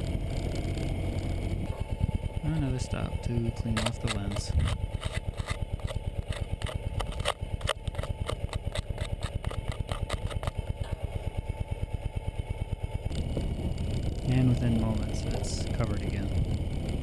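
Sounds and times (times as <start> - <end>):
motorcycle engine idling: 0.0 - 17.0
glove scraping camera housing: 3.2 - 11.2.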